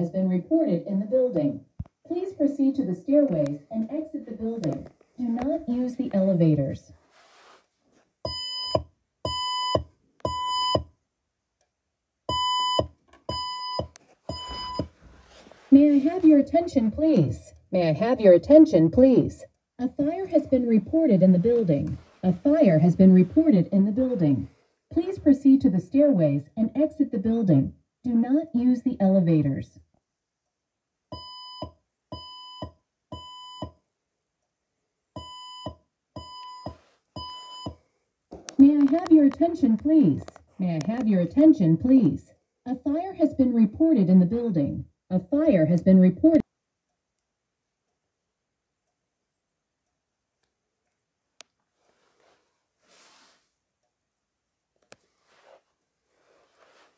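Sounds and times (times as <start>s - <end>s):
spoken evacuation messages: 0.0s - 7.0s, 15.7s - 29.8s, 38.5s - 46.4s
fire alarm beeps: 8.3s - 10.9s, 12.3s - 14.9s, 31.2s - 33.8s, 35.2s - 37.8s.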